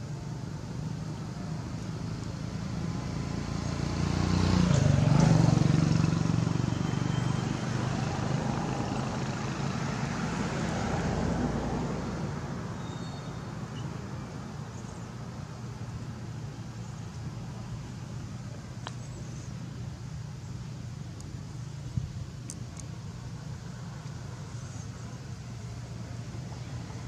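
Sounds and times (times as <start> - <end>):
vehicle engine passing: 0.8 - 12.8.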